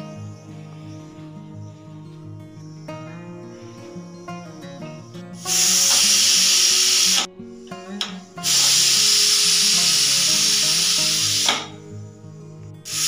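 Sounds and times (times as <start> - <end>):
pressure cooker whistle hissing: 5.4 - 7.3, 8.0 - 11.8.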